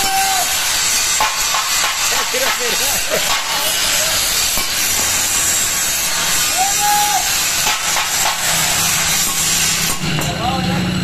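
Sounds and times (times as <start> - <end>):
angle grinder grinding metal: 0.0 - 10.4.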